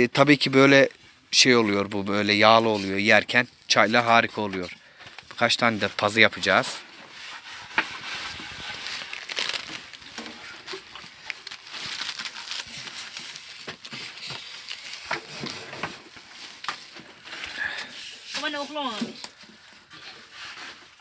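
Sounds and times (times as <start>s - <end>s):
wood fire crackling: 0.4s - 20.7s
rolling pin scraping on board: 7.0s - 9.0s.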